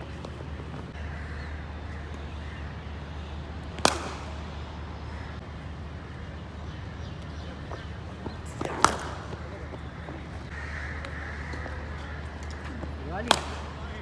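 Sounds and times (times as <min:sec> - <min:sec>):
steady low hum: 0:00.0 - 0:14.0
cricket bat hitting ball: 0:03.6 - 0:05.1, 0:07.7 - 0:14.0.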